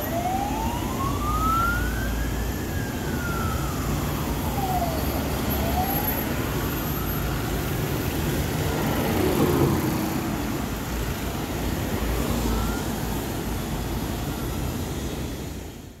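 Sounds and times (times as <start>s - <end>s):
siren wailing: 0.0s - 7.8s, 12.0s - 13.6s
road traffic: 0.0s - 16.0s
car passing: 8.0s - 12.8s.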